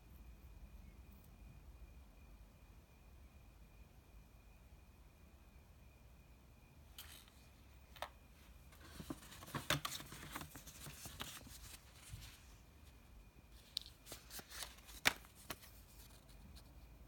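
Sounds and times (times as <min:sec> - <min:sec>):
paper and packaging rustling: 0:07.0 - 0:08.1, 0:08.7 - 0:13.0, 0:13.6 - 0:16.7.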